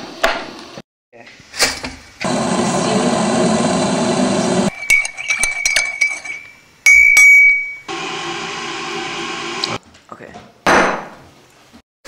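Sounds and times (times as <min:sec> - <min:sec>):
teaspoon clinking against mug: 0:04.7 - 0:07.9.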